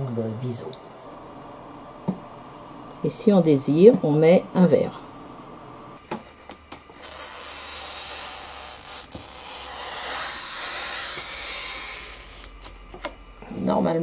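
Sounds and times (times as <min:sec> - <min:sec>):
glass cutter scoring glass: 0:07.0 - 0:12.6.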